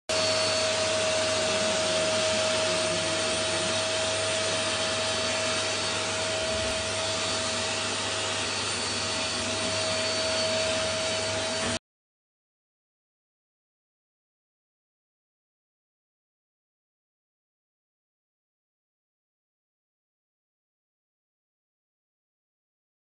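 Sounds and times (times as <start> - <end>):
vacuum cleaner running: 0.1 - 11.8.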